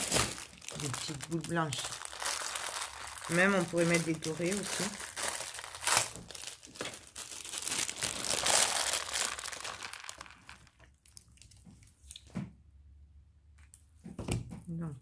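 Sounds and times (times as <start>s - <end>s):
plastic bag crinkling: 0.0s - 11.9s.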